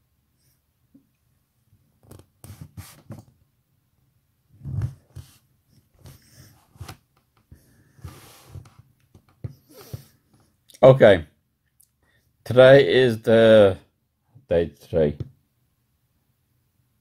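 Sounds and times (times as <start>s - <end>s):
breathing noises: 9.6s - 10.4s.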